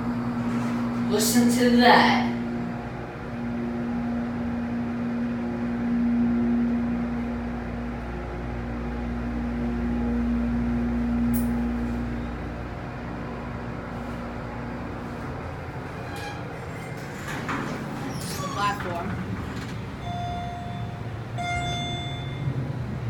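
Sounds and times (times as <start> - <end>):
elevator pump motor humming: 0.0 - 23.0.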